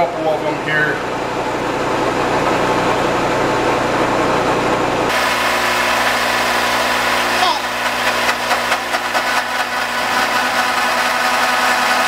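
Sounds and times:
milling machine cutting metal: 5.1 - 12.0.

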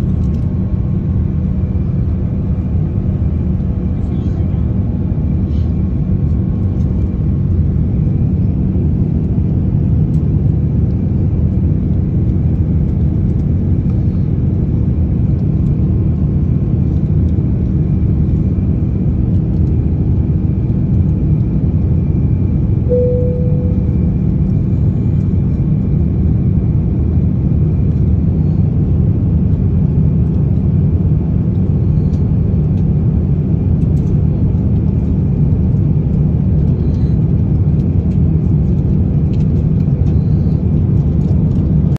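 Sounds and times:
airliner cabin engine rumble: 0.0 - 41.9
brief single tone: 22.9 - 24.2.

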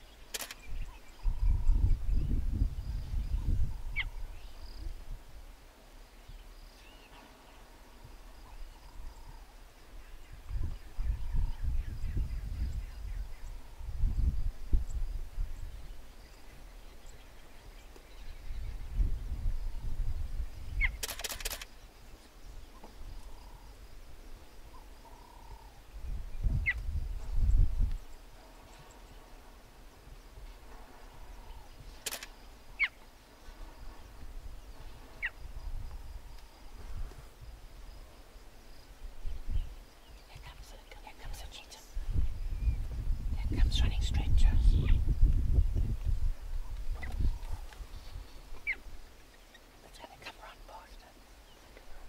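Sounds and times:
rattle of sharp clicks: 0.3 - 0.7, 21.0 - 21.8, 32.0 - 32.4
cheetah chirping: 46.9 - 50.4.

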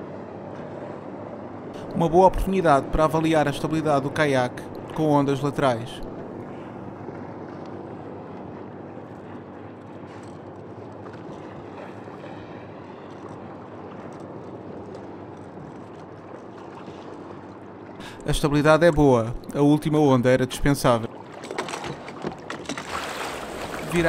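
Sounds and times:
waves sloshing against kayak hull: 5.9 - 19.6, 21.0 - 24.0.

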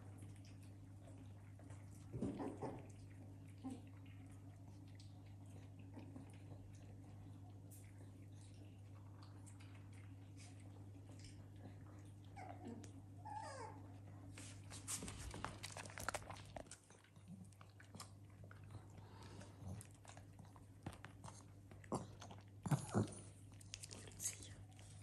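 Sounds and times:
dog crunching dry kibble: 14.7 - 25.0.

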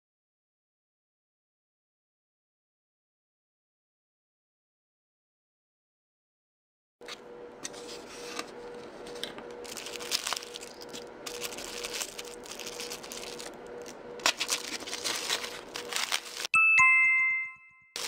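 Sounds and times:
faint steady hum: 7.0 - 16.5
thin plastic crinkling: 7.7 - 16.5.

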